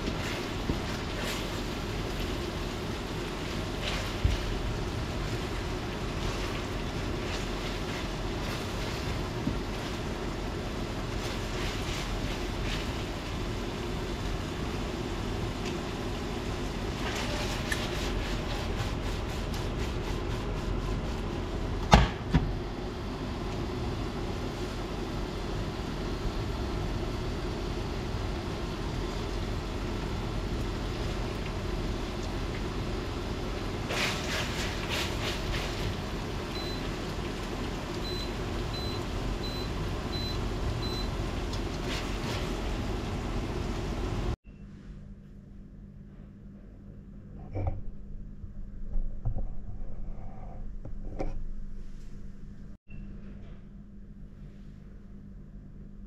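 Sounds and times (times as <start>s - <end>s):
appliance hum: 0.0s - 56.0s
spatula scraping pasta in metal pan: 17.0s - 21.1s.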